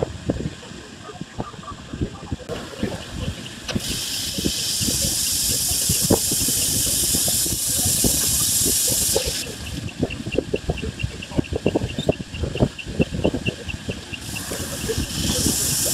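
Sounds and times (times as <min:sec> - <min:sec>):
grinding wheel high hiss: 0:02.5 - 0:10.0, 0:14.0 - 0:15.9.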